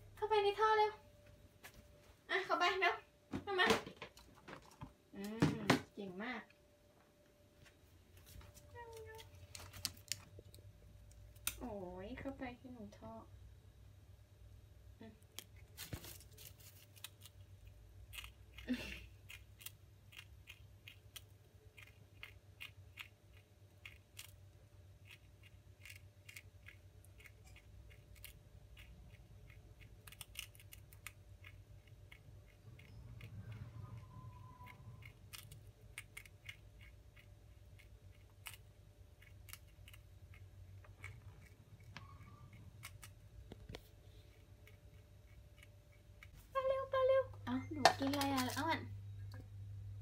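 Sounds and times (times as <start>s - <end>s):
prairie dog gnawing: 15.2s - 46.6s.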